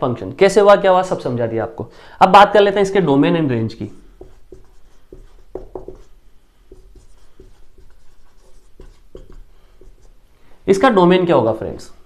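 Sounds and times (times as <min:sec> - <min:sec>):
marker writing on whiteboard: 0:03.8 - 0:10.2.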